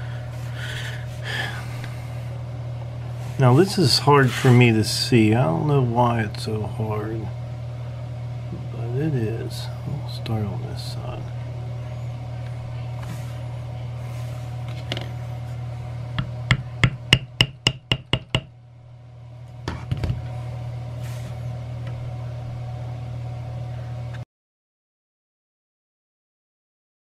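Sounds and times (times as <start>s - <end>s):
steady low hum: 0.0s - 24.2s
mallet tapping metal stamp: 16.5s - 18.5s.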